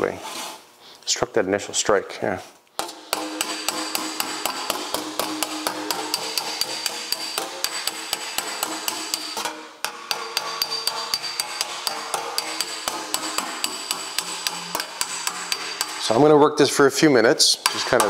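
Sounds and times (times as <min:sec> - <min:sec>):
hammer on sheet metal ringing: 0:02.8 - 0:16.4.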